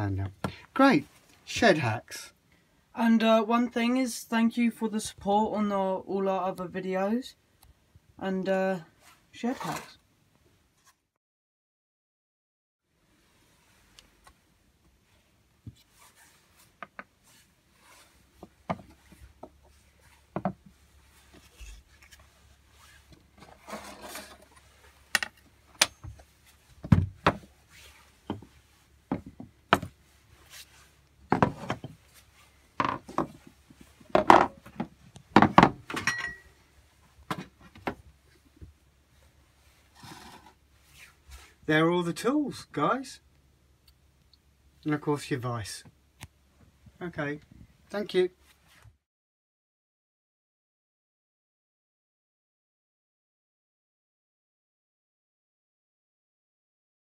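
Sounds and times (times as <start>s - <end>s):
wooden knocks and taps: 20.3s - 20.7s, 28.3s - 29.9s, 31.3s - 31.9s, 34.1s - 35.8s.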